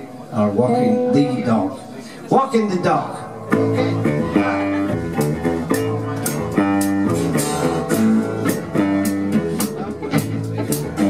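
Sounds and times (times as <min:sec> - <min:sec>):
live rhythm and blues band: 0:03.4 - 0:11.0
drum beat: 0:04.2 - 0:11.0.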